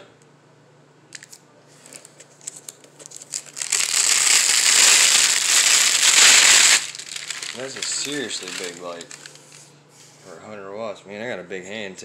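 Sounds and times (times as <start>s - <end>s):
protective sheet crinkling: 1.8s - 9.6s.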